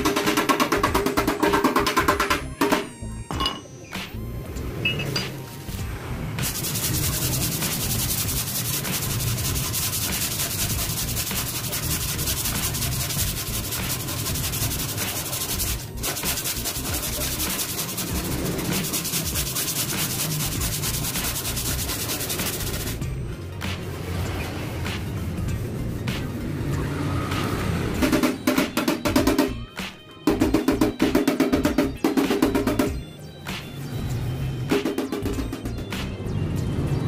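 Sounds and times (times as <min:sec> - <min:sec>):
sandpaper rubbing on metal: 0:06.4 - 0:23.0.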